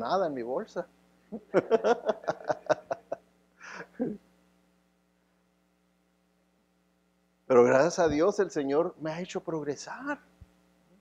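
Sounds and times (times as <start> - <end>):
man laughing: 1.3 - 4.2.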